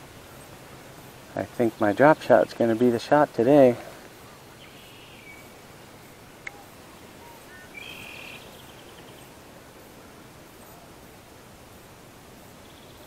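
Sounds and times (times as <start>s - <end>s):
birds calling: 0.0s - 9.8s.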